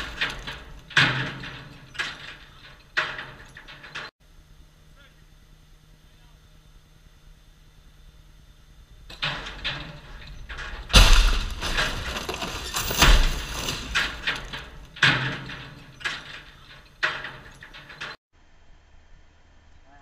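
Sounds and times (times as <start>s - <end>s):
car crashing to ground: 0.0s - 4.0s, 9.1s - 18.1s
debris clattering: 0.0s - 4.1s, 8.9s - 18.2s.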